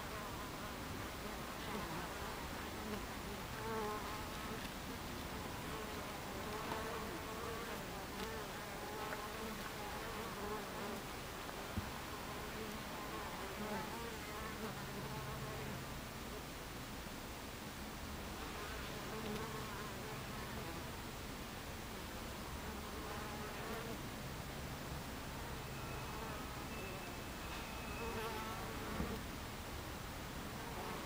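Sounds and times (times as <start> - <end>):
bees buzzing: 25.3 - 29.2
single bees flying past: 25.4 - 29.2.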